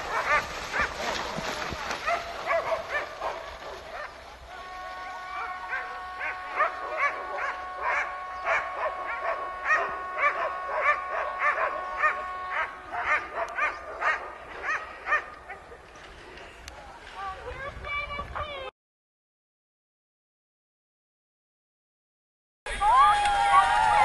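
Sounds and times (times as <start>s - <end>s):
dogs barking and yelping: 0.0s - 4.2s, 5.4s - 15.8s.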